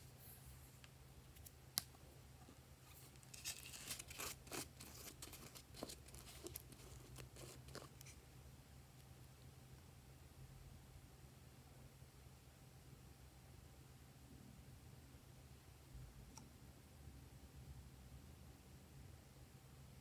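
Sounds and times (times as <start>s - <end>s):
faint low hum: 0.0s - 20.0s
plastic scrapes and clicks: 3.1s - 8.2s.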